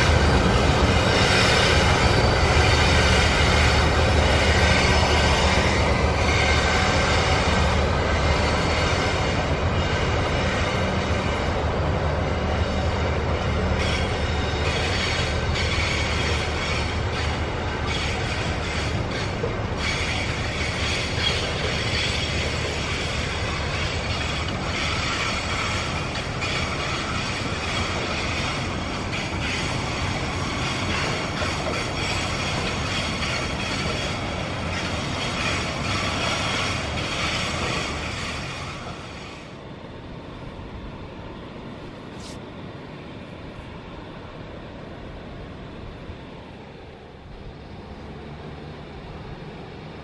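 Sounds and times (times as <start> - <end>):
high wheel squeal: 0.0 - 11.6, 12.8 - 39.5
train wheels rumbling: 0.0 - 50.0.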